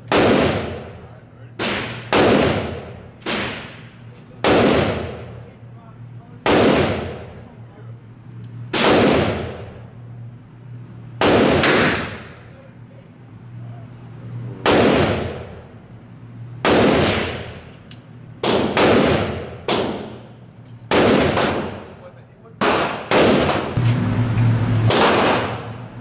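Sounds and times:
gunshots echoing indoors: 0.0 - 1.0, 1.6 - 5.4, 6.4 - 7.4, 8.7 - 9.8, 11.2 - 12.4, 14.6 - 15.7, 16.6 - 17.7, 18.4 - 20.3, 20.9 - 22.0, 22.6 - 23.8, 24.8 - 25.8
low hum: 0.0 - 26.0.

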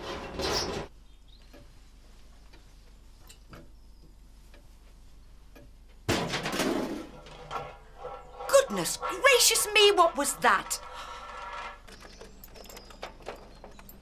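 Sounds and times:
faint ticks: 1.4 - 6.0
loud clattering crash: 6.1 - 7.6.

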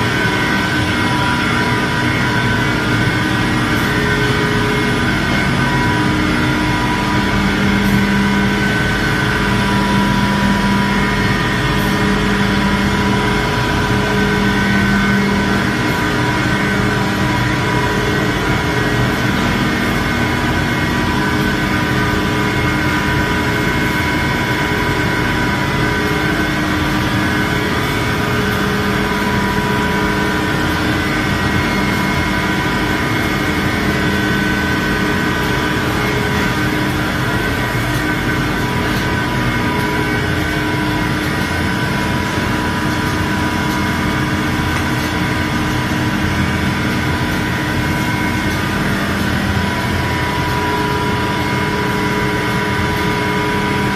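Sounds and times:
sanding machine drone: 0.0 - 53.9.

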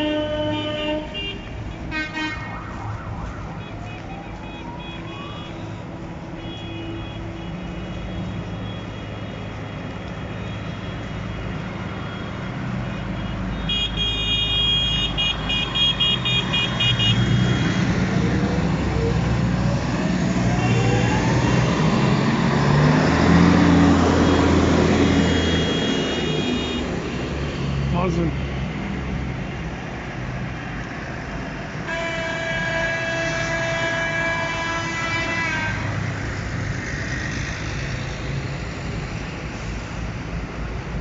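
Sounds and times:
distant horns honking: 0.0 - 19.2, 23.3 - 27.3, 31.8 - 36.1
tractor diesel engines passing: 0.0 - 41.0.

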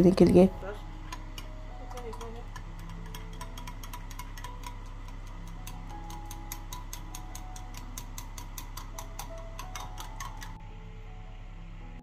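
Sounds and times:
soft background music: 0.0 - 12.0
utensil clinking against bowl: 1.1 - 10.6.

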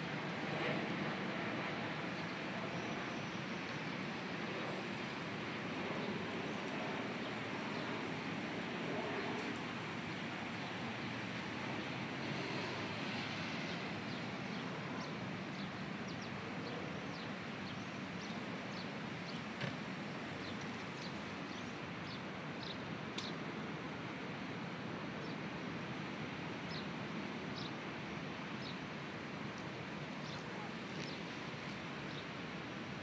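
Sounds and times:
outdoor background noise: 0.0 - 33.0
small birds chirping: 30.2 - 32.3.

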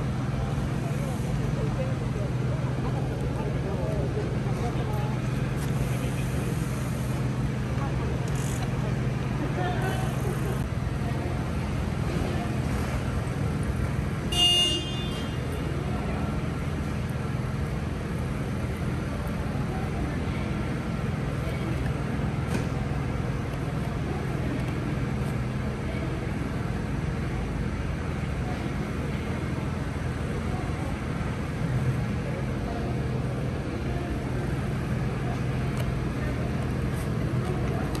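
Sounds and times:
low mechanical hum: 0.0 - 38.0.

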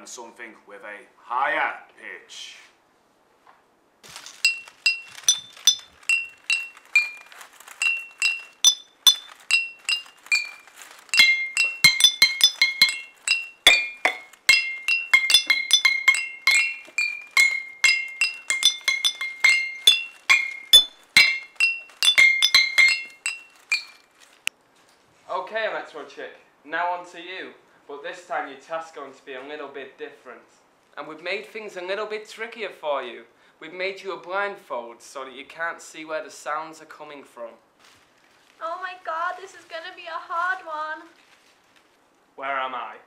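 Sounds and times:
glass bottles struck ringing: 4.4 - 7.2, 7.8 - 24.0.

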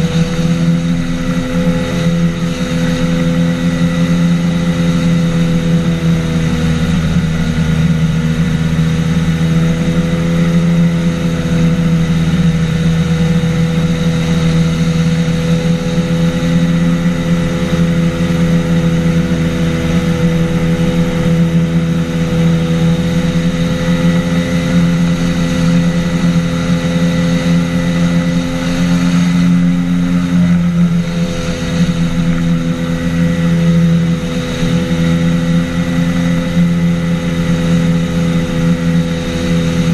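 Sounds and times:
aircraft engine and propeller drone: 0.0 - 39.9.

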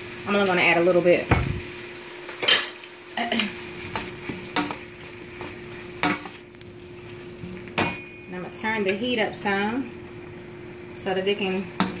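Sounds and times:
food sizzling in a wok: 0.0 - 12.0
wooden spoons scraping a pan: 2.4 - 6.4.

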